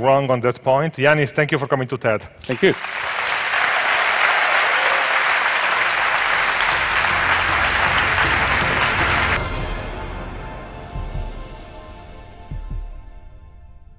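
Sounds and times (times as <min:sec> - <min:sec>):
audience applauding: 0:02.4 - 0:09.4.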